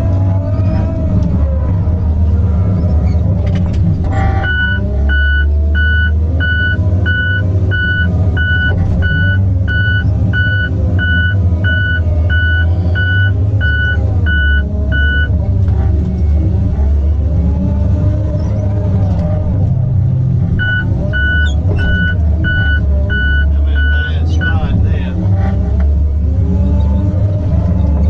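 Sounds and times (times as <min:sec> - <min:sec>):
diesel engine running: 0:00.0 - 0:28.0
backup alarm beeping: 0:04.4 - 0:15.3, 0:20.6 - 0:24.6.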